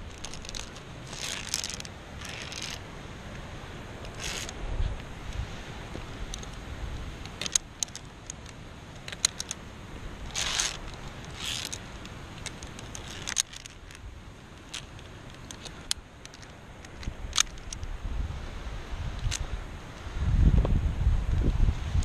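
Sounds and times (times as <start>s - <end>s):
carabiners clinking on steel cable: 0.0s - 2.8s, 4.0s - 4.6s, 7.2s - 9.6s, 10.2s - 14.0s, 14.6s - 17.9s
wind rumble on microphone: 0.0s - 7.6s, 16.9s - 22.0s
rustling swishes: 0.0s - 20.1s.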